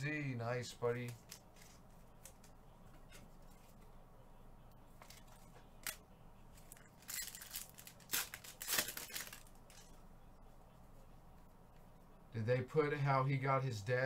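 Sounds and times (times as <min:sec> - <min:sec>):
foil wrappers crinkling: 0:06.6 - 0:09.9.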